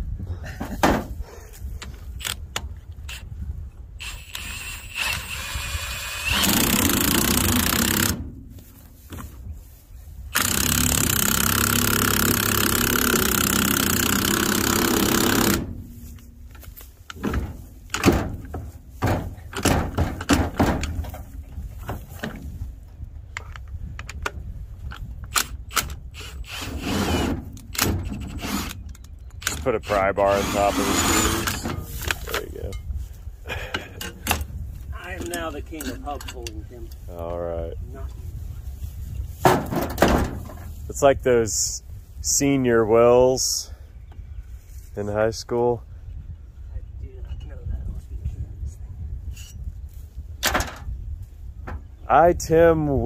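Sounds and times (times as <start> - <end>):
impact wrench running: 4.0 - 8.2, 10.4 - 15.8
tools clanking against metal: 35.2 - 37.0.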